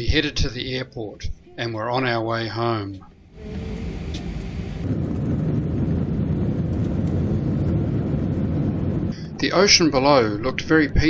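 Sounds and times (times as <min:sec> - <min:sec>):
jet engines at takeoff: 0:03.1 - 0:11.0.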